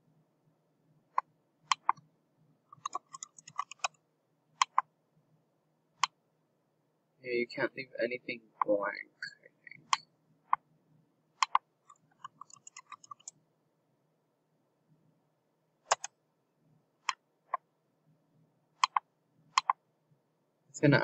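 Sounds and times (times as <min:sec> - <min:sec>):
computer mouse clicks: 0:01.1 - 0:02.1, 0:02.7 - 0:04.0, 0:04.6 - 0:04.9, 0:09.7 - 0:10.6, 0:11.4 - 0:13.4, 0:15.8 - 0:16.2, 0:17.0 - 0:17.6, 0:18.8 - 0:19.8
keyboard typing: 0:01.2 - 0:02.0, 0:02.7 - 0:04.0, 0:04.6 - 0:04.9, 0:11.4 - 0:13.4, 0:15.9 - 0:16.2, 0:18.8 - 0:19.8.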